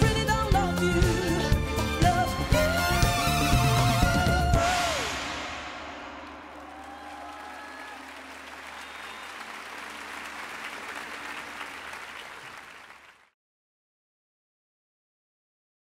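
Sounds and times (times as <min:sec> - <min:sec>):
audience applauding: 0:06.2 - 0:13.4.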